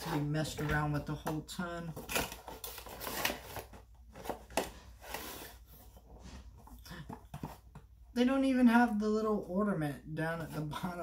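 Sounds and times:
packaging rustling: 1.9 - 5.8.

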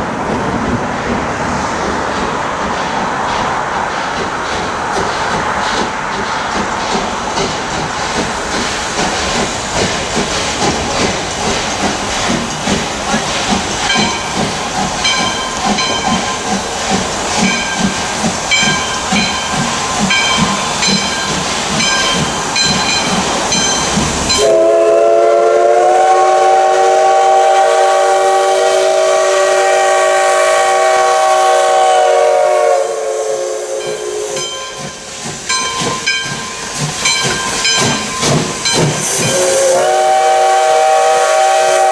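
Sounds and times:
steam locomotive chuffing: 0.0 - 41.9
steam whistle chord: 24.3 - 34.7, 39.1 - 41.9.

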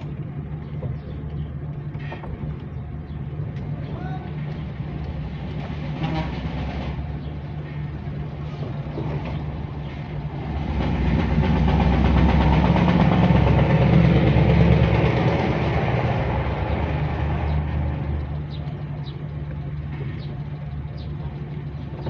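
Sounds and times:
low traffic engine hum: 0.0 - 22.0
truck passing close by: 4.5 - 22.0.

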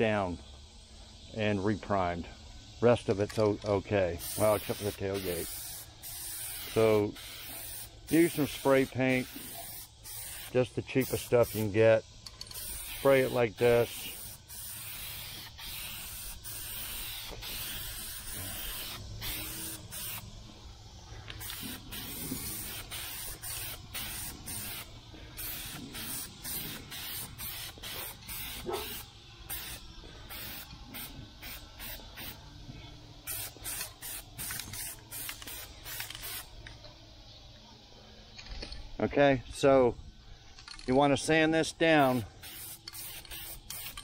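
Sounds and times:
spray paint can hissing: 4.1 - 32.6, 33.2 - 36.7, 41.9 - 44.0.

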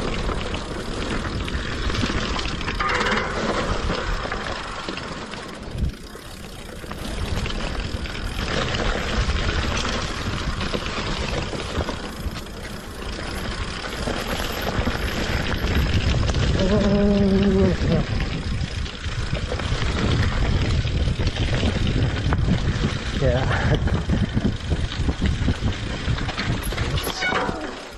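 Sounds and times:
bike rattling over bumps: 0.0 - 27.9
tyres rumbling on dirt and leaves: 0.0 - 27.9
wind rushing over microphone: 14.0 - 27.9.

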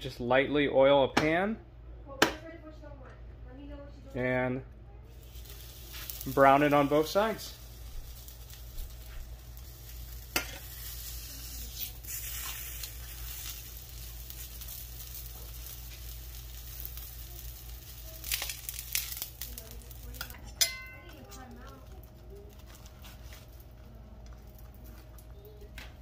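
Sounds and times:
tortilla sizzling in oil: 5.1 - 26.0
tongs clinking on pan: 10.3 - 13.6, 20.1 - 21.6.

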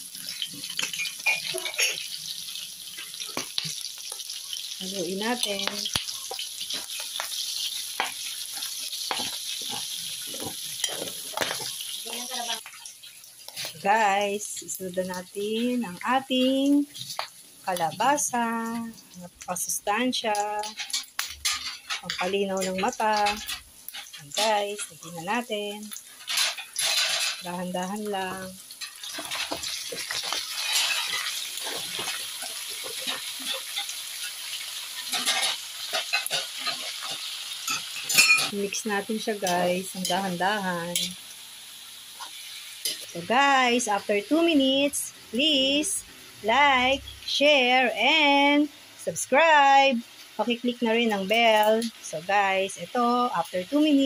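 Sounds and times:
food sizzling in hot oil: 0.0 - 54.0
metal spatula scraping a wok: 7.6 - 11.8, 26.2 - 27.4, 28.8 - 38.5.

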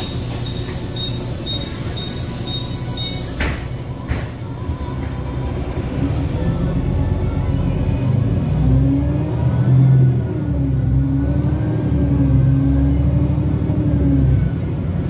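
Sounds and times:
door warning beeps: 0.0 - 4.5
bus doors shutting: 0.0 - 5.9
bus engine rumble: 0.0 - 15.0.

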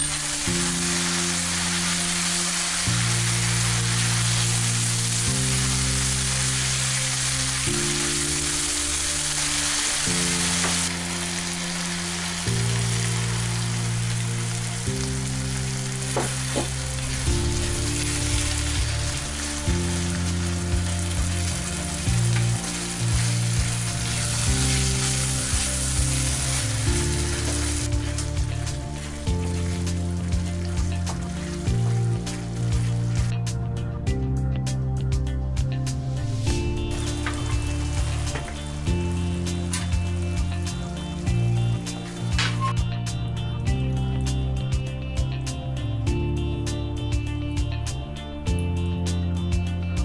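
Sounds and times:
sauce sizzling in a frying pan: 0.0 - 33.3, 36.4 - 42.4
background music: 0.0 - 50.0.

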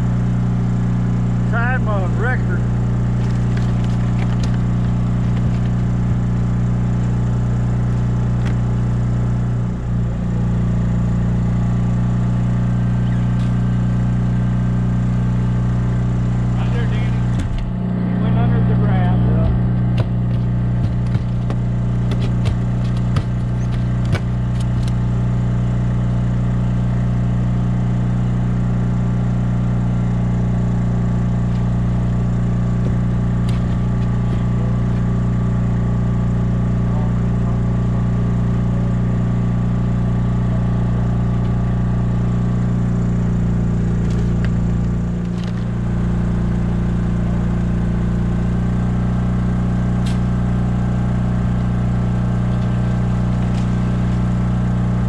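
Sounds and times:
small engine humming: 0.0 - 55.0
knocks and clatters on boat: 3.1 - 6.3, 17.2 - 17.7, 19.4 - 25.0, 32.6 - 35.2.

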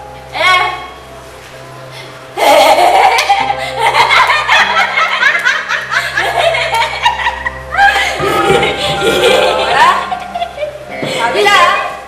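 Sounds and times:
woman laughing loudly: 2.4 - 10.8.

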